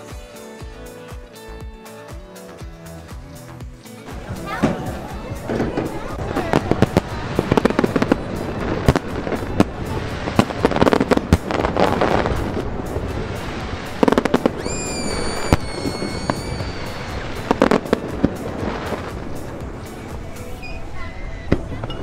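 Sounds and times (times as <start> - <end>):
background music: 0.0 - 22.0
fireworks bangs and crackles: 4.1 - 20.9
high steady whistle: 14.6 - 17.5.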